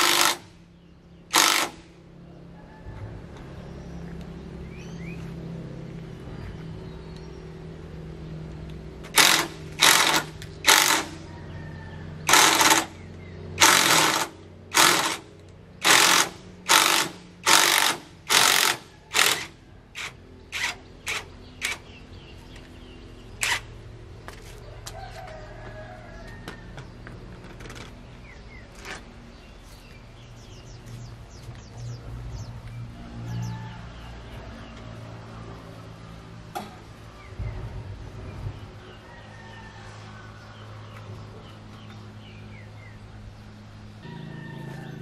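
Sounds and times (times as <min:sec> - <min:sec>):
impact wrench hammering: 0:00.0 - 0:00.4.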